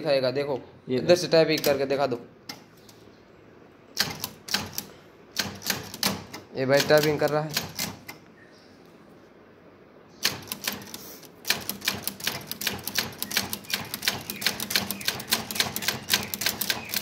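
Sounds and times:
typewriter keys clacking: 0:04.0 - 0:08.1, 0:10.2 - 0:17.0.

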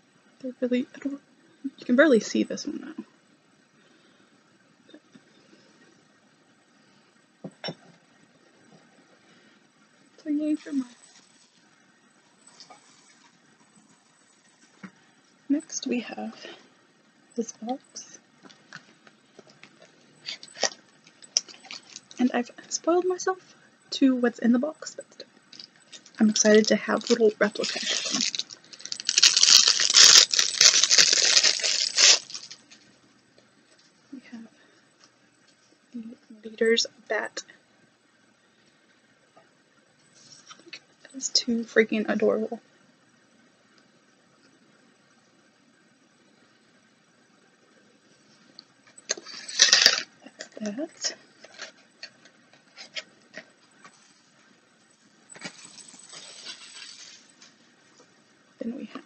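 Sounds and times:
plastic wrapping crinkling: 0:18.5 - 0:22.2, 0:25.5 - 0:32.9, 0:49.0 - 0:54.2, 0:55.3 - 0:57.6
packaging rustling: 0:19.6 - 0:22.2, 0:25.6 - 0:32.8, 0:49.1 - 0:50.1, 0:55.3 - 0:57.5.

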